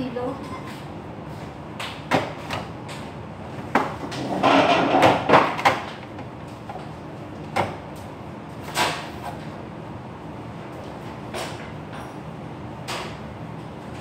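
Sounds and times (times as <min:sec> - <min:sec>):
kitchen items clattering: 0:04.1 - 0:05.8.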